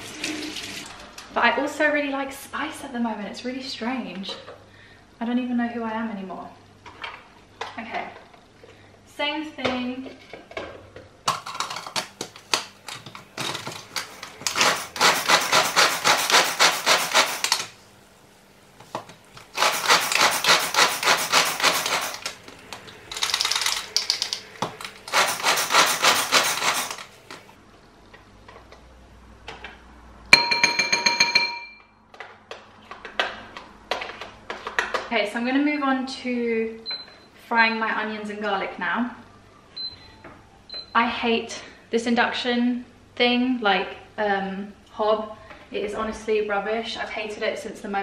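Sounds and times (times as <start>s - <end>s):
food chopper ratcheting: 13.4s - 17.7s, 19.4s - 22.4s, 23.1s - 27.2s.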